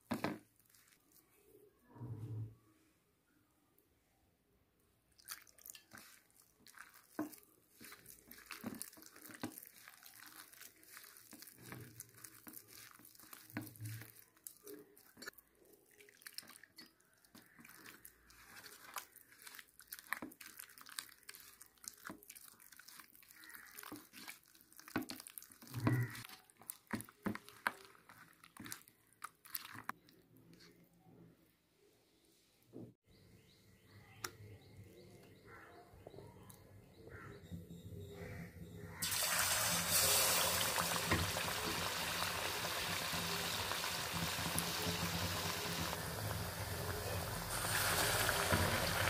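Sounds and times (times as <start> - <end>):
hand squelching batter: 0.0 - 1.7, 5.1 - 31.2.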